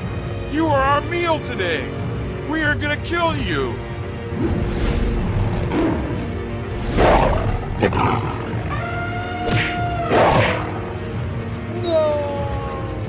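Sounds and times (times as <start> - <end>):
background music: 0.0 - 13.0
cartoon tiger roars: 6.8 - 10.4.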